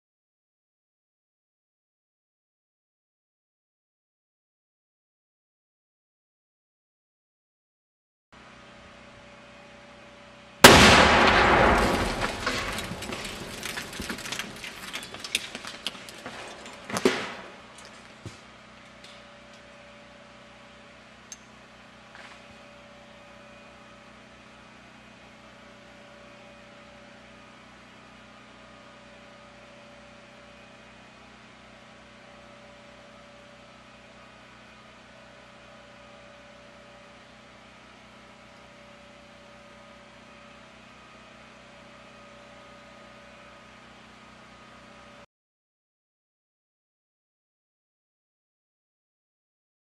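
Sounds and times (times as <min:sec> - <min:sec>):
sharp bang: 0:10.6 - 0:14.3
loud blast: 0:10.6 - 0:14.6.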